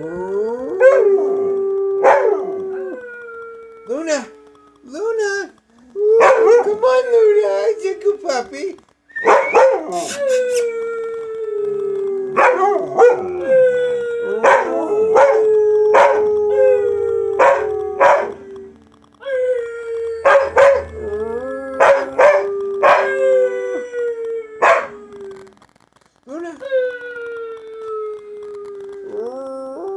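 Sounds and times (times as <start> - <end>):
dog howling: 0.0 - 4.9, 5.9 - 8.0, 9.2 - 25.6.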